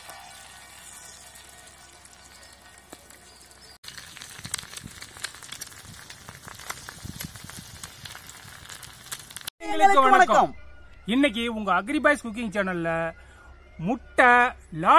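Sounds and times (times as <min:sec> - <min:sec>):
eggs sizzling on griddle: 0:00.0 - 0:09.5
oil crackles and pops: 0:00.0 - 0:09.5.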